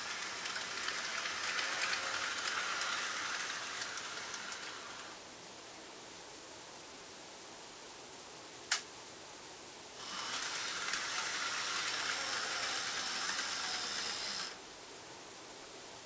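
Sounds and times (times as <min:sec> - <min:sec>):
model train motor whirring: 0:00.0 - 0:05.2, 0:10.0 - 0:14.6
sharp click: 0:08.7 - 0:08.9.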